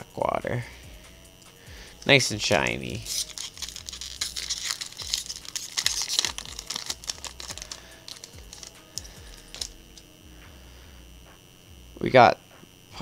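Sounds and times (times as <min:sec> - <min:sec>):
foil wrapper tearing and crinkling: 0:02.9 - 0:10.0.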